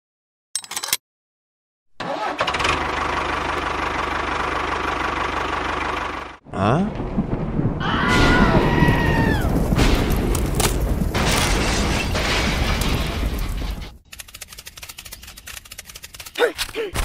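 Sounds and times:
dense roar: 6.5 - 10.3
rumbling thunder booms: 6.9 - 13.5
evenly spaced ticks: 14.1 - 16.4.

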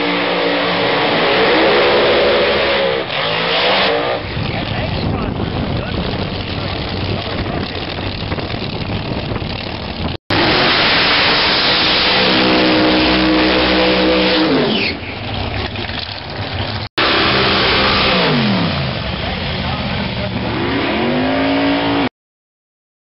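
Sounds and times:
drag car engine at high revs: 0.0 - 8.5, 10.3 - 22.1
spinning tyres: 4.1 - 18.2.

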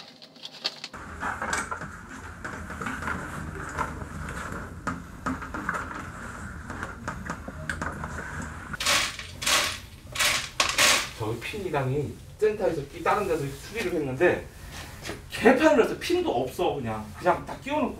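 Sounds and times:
plastic rubbing and scraping: 0.0 - 7.2.

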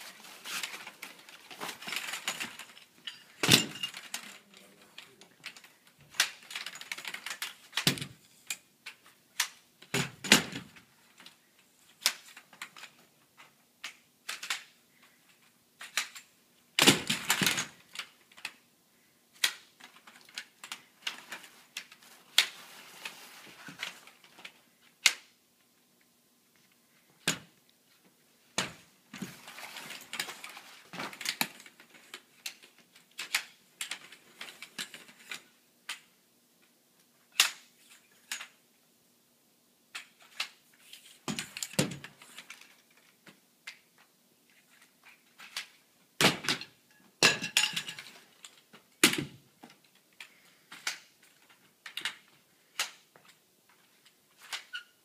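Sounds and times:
metal tubes clattering and clicking: 0.5 - 9.6, 47.2 - 48.6.

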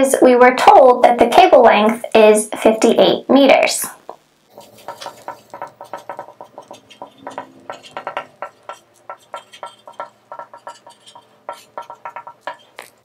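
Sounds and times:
marker squeaking on glass: 4.5 - 13.0.

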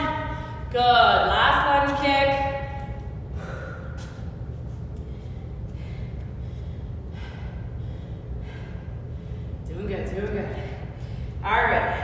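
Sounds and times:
steady low hum: 0.0 - 12.0
woman breathing: 0.2 - 0.7, 3.2 - 9.8, 10.4 - 11.4.

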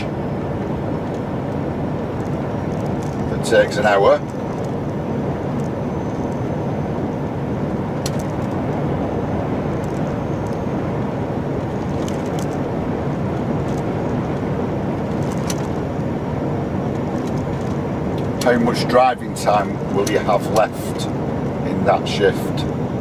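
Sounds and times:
lorry engine and road noise: 0.0 - 23.0
faint rattles in cab: 0.9 - 6.6, 9.6 - 16.1, 16.9 - 22.8.

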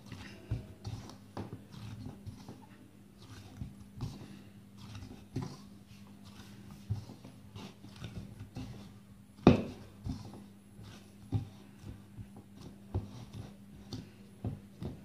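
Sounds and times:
dough thumping against bowl: 9.4 - 10.4.

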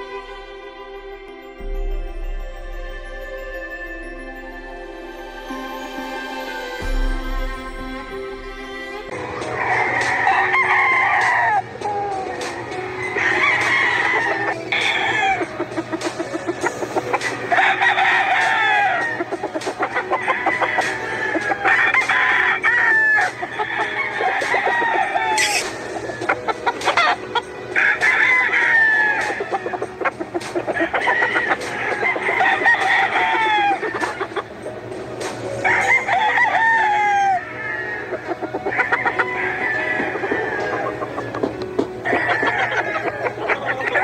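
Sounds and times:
roosters crowing: 8.7 - 34.8, 35.4 - 44.0.

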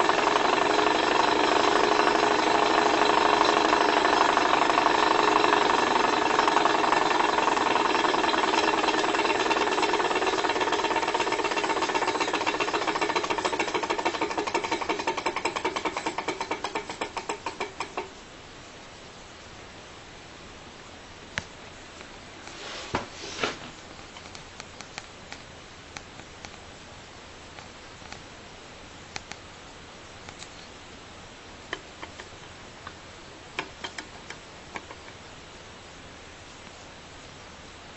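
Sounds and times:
small engine mechanical clatter: 0.0 - 18.2
steady hiss: 0.0 - 37.9.

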